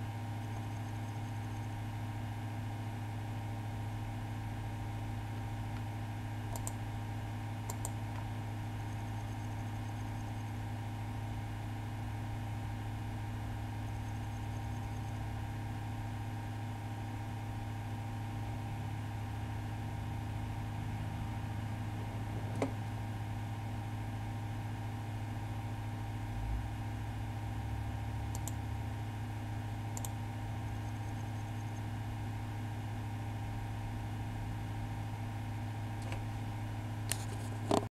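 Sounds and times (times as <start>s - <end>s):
computer electrical hum: 0.0s - 37.9s
mouse clicks: 6.5s - 6.8s, 7.7s - 8.0s, 28.3s - 28.6s, 30.0s - 30.2s.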